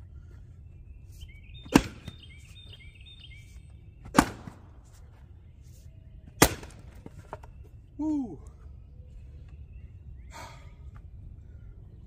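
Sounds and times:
axe striking wood: 1.7 - 2.2, 4.0 - 4.6, 6.4 - 7.0.

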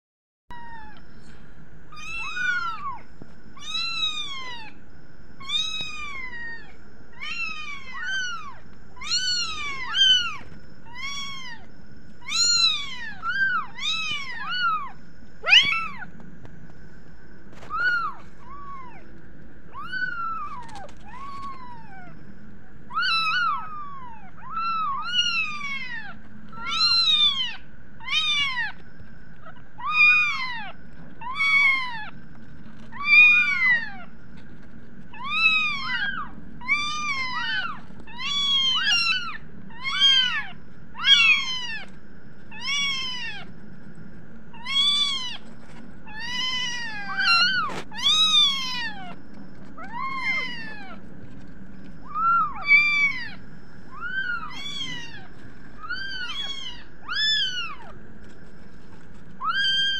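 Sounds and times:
faint steady hum: 0.5 - 59.9
kittens meowing: 1.9 - 4.8, 5.4 - 16.1, 17.6 - 19.1, 19.7 - 22.2, 22.9 - 28.8, 29.4 - 32.2, 32.9 - 34.1, 35.1 - 43.5, 44.5 - 45.4, 46.0 - 51.1, 52.0 - 58.0, 59.4 - 59.9.

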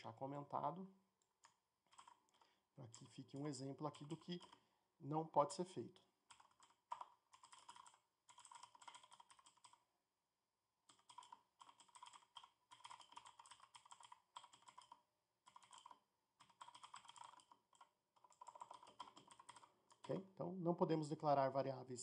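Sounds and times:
typing on computer keyboard: 1.4 - 3.2, 3.9 - 4.6, 6.2 - 9.8, 10.8 - 20.2.

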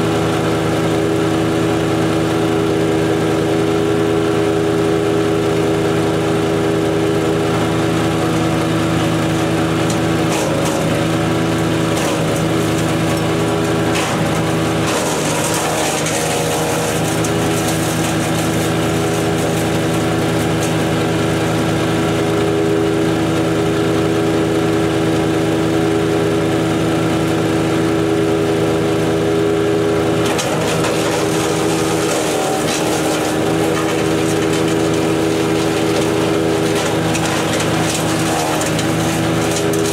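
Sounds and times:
wood chipper engine running: 0.0 - 39.9
branch chipping noise: 9.4 - 21.0, 30.2 - 39.9.

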